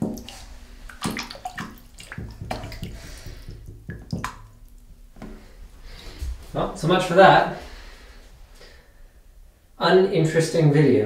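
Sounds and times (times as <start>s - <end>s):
hand splashing in bathtub water: 0.0s - 6.8s.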